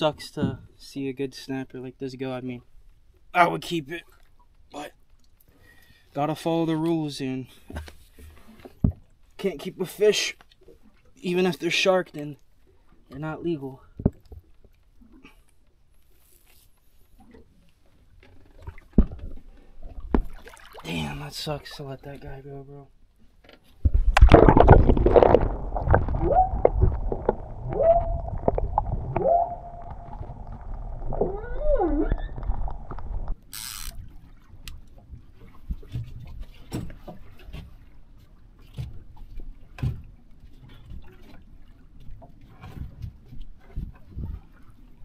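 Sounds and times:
open-air water sounds: 0.0s - 45.0s
muffled underwater rushing: 23.9s - 33.4s
whine-like tones: 25.7s - 33.4s.

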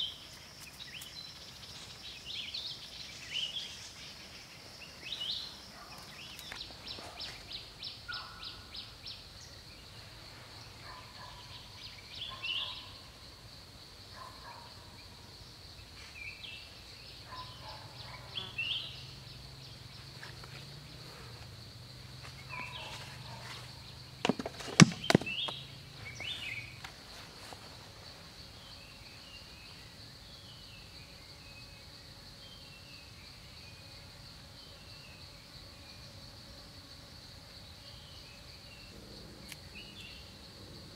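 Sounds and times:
insect drone: 0.0s - 40.9s
bird calls: 10.8s - 13.1s, 22.3s - 26.9s.

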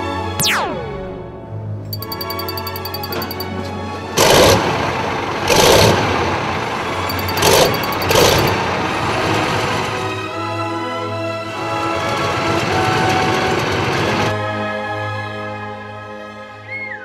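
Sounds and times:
tank engine running and revving: 4.2s - 14.3s.

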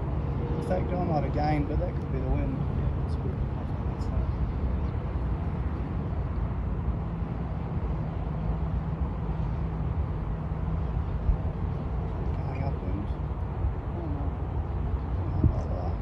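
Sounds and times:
wind buffeting the microphone: 0.0s - 16.0s.

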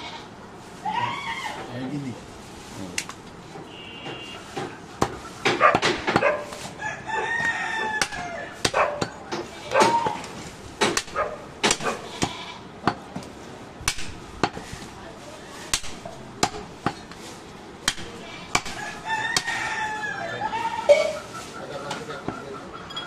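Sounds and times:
rooster crowing: 6.8s - 8.6s, 18.6s - 21.3s
knife chopping ribs on wood: 7.3s - 10.2s, 10.8s - 12.0s, 15.7s - 17.1s, 17.8s - 19.8s.

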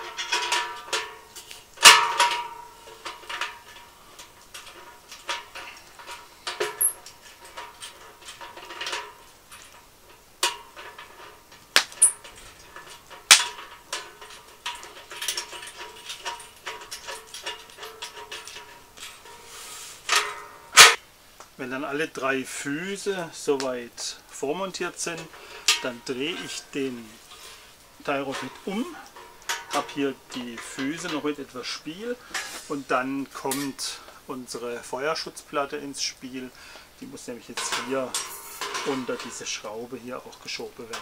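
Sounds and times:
metallic clinks and knocks on steel: 0.0s - 21.0s, 37.6s - 39.7s.

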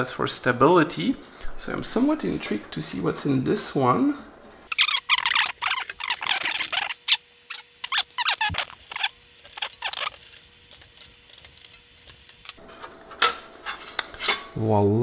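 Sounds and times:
metal cover scraping and squeaking: 4.7s - 12.6s.

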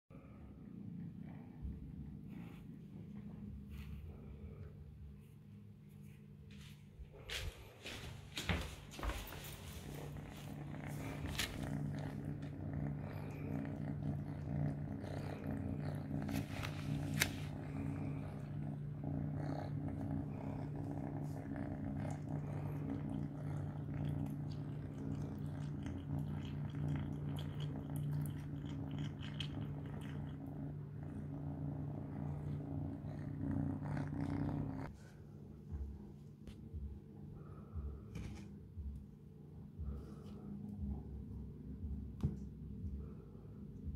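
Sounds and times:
kitten purring: 0.2s - 5.3s, 8.6s - 35.0s.

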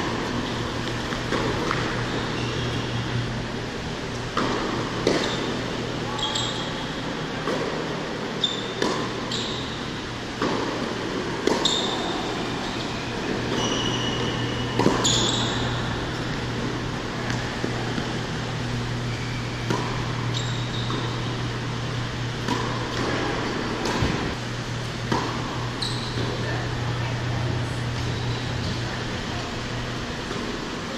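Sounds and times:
rackets hitting tennis ball: 0.0s - 2.9s, 4.1s - 6.7s, 8.6s - 24.4s, 25.0s - 26.4s
tennis ball bouncing: 0.0s - 2.9s, 4.3s - 5.6s, 8.7s - 18.2s, 19.6s - 21.3s, 22.4s - 24.3s, 25.1s - 26.4s
shoes squeaking on court: 0.2s - 3.3s, 4.1s - 7.0s, 8.3s - 24.4s, 25.0s - 26.6s, 27.8s - 29.1s.

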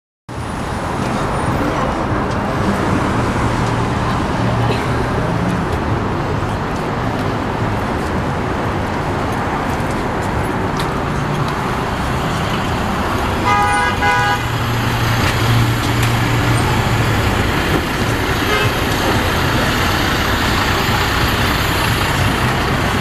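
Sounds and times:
bus engine hum: 0.3s - 23.0s
traffic noise: 0.3s - 23.0s
beeping horn toot: 13.4s - 14.6s, 18.4s - 18.9s.

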